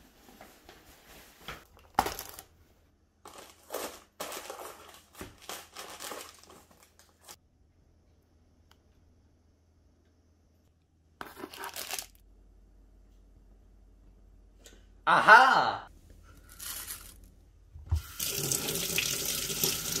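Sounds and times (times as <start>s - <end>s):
ribbon and box rustling: 11.2s - 12.2s.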